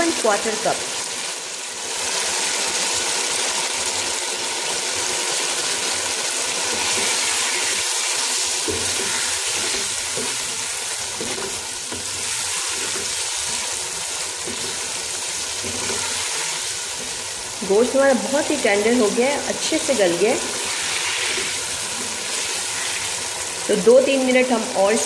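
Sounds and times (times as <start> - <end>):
food sizzling in a pot: 0.0 - 25.0
spatula stirring: 6.6 - 18.6.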